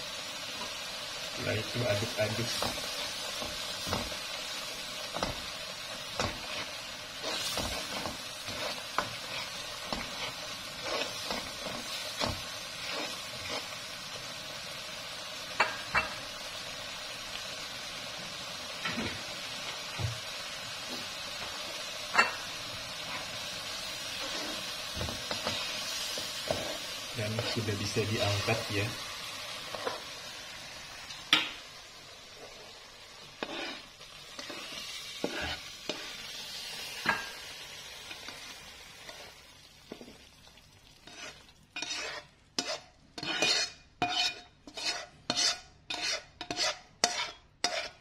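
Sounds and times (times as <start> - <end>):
noodles sizzling in a pan: 0.0 - 48.0
spatula scraping and knocking pan: 1.7 - 4.3, 5.0 - 13.8, 24.1 - 28.9, 29.7 - 30.1, 33.4 - 36.2, 41.0 - 48.0.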